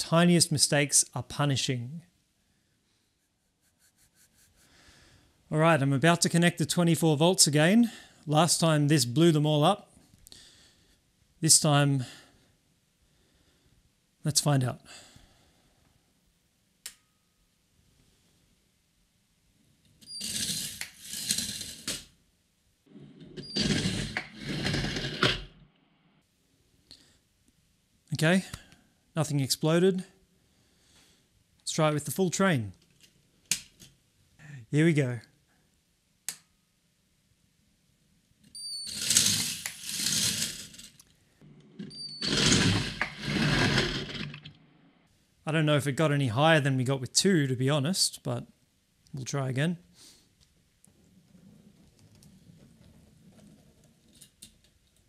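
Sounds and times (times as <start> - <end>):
toy coaster car rattling on plastic track: 20.2 - 22.1, 38.9 - 41.0, 42.2 - 44.5
toy roller coaster rattling on track: 38.9 - 40.9.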